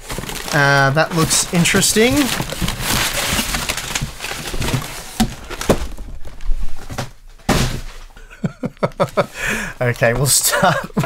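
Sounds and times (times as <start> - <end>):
packing paper rustling: 0.0 - 11.0
dull thunks of objects set down: 5.2 - 8.1.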